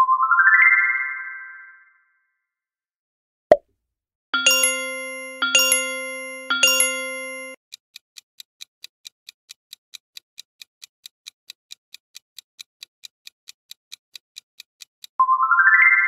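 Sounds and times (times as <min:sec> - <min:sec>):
chime ringing: 0:04.4 - 0:07.6
clock ticking: 0:04.4 - 0:15.2.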